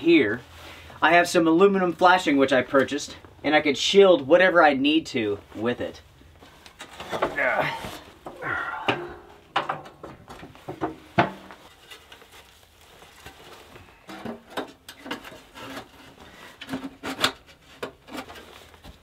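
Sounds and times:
metal pipes knocking and clinking: 0:08.9 - 0:11.5.

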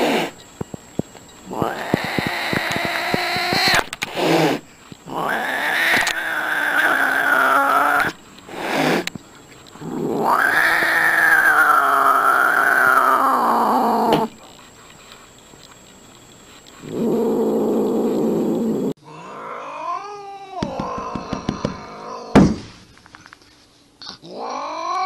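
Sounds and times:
cat yowling: 0:10.1 - 0:14.2.

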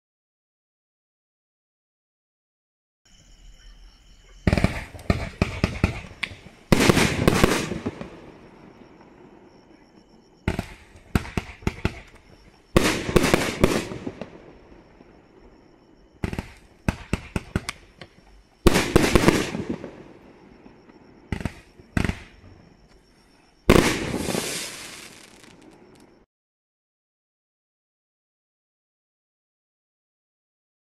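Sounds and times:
big fireworks burst: 0:04.2 - 0:26.2
fireworks cake firing: 0:04.4 - 0:08.4, 0:10.4 - 0:14.6, 0:23.7 - 0:26.0.

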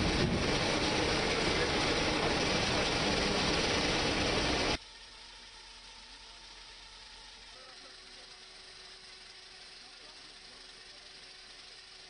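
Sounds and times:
loud engine noise: 0:00.0 - 0:04.8.

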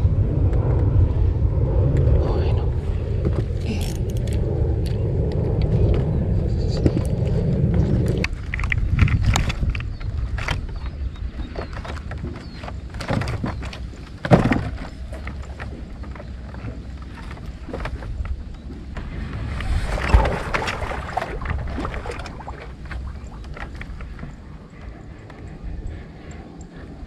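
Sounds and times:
low steady rumble: 0:00.0 - 0:27.0
thumps on wooden boat deck: 0:12.2 - 0:15.3.

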